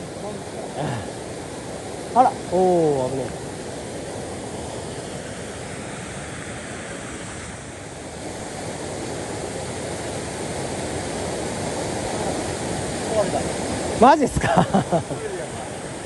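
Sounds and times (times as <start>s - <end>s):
stream water rushing: 0.0s - 16.0s.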